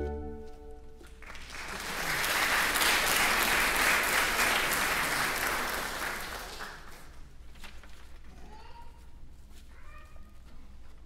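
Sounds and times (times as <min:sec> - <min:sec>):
saxophone chord ringing: 0:00.0 - 0:01.0
audience applause: 0:01.2 - 0:07.2.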